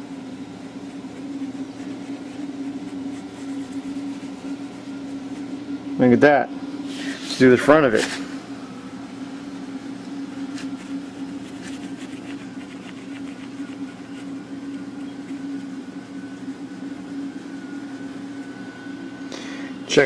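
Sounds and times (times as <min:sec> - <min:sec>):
steel wool scratching chrome: 0:00.0 - 0:05.5, 0:10.3 - 0:18.7
low machine hum: 0:00.0 - 0:20.0.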